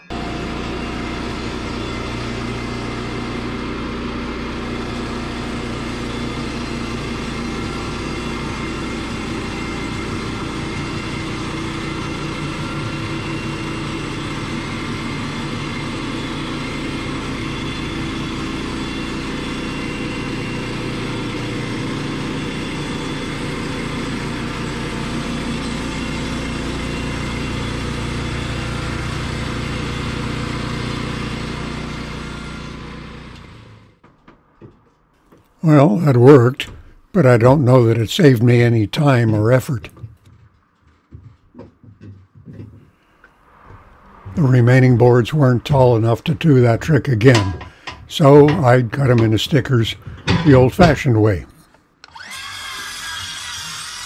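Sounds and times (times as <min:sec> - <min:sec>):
bandsaw mill engine running: 0:00.0 - 0:34.8, 0:35.6 - 0:40.1, 0:43.5 - 0:54.0
band blade cutting boards: 0:35.3 - 0:40.1, 0:44.3 - 0:54.0.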